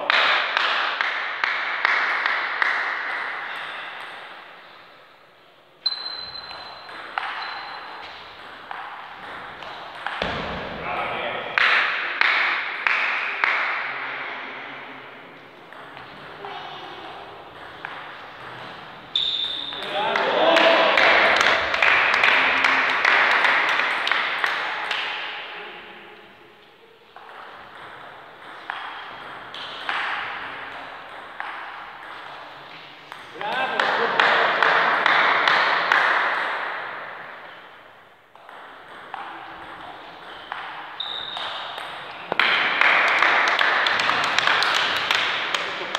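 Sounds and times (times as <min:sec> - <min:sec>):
table tennis ball knocks: 0:06.5 - 0:10.8, 0:27.2 - 0:32.3.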